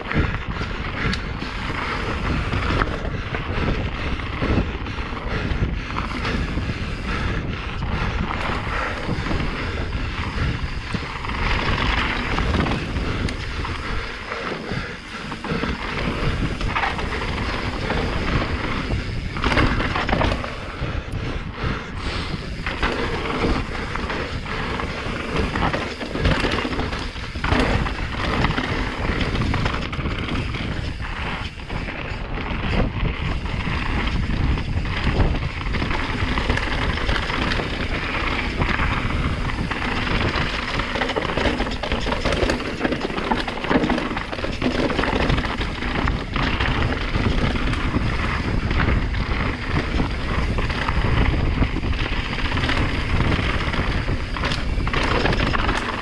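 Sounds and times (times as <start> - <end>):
bike knocks and rattles: 0.0 - 56.0
wind rushing over microphone: 0.0 - 56.0
tyres rumbling over stones: 22.0 - 56.0.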